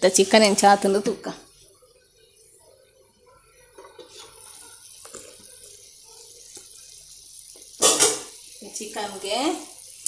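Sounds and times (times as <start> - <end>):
chicken simmering with watery hiss: 0.0 - 10.0
pan lid clinking: 7.8 - 8.3.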